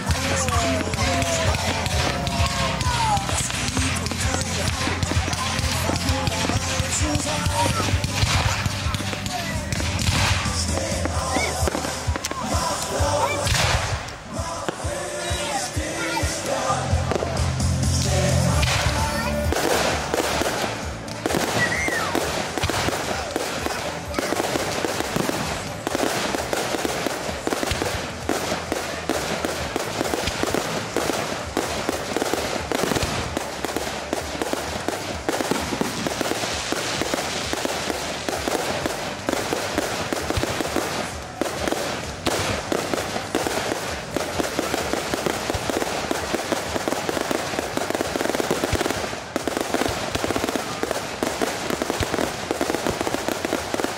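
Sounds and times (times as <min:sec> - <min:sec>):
fireworks crackling: 0:00.0 - 0:53.9.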